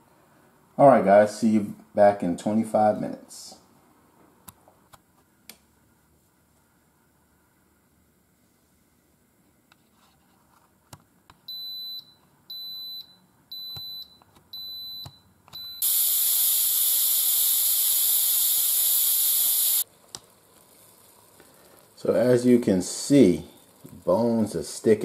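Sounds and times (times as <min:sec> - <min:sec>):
pressure cooker beeping: 0:11.5 - 0:19.8
steam hissing from valve: 0:15.8 - 0:19.8.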